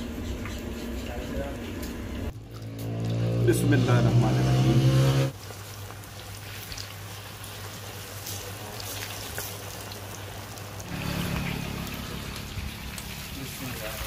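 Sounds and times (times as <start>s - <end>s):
food sizzling in hot oil: 5.0s - 14.0s.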